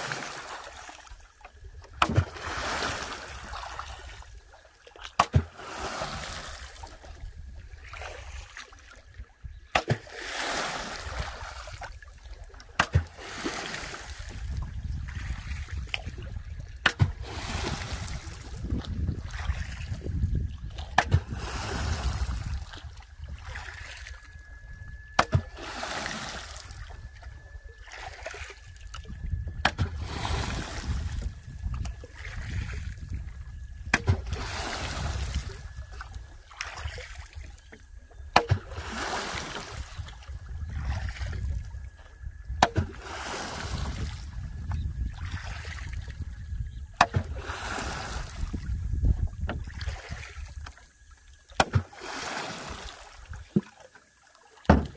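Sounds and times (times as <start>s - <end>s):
water splashing and swishing: 0.0s - 54.9s
boat knocking: 54.6s - 54.9s.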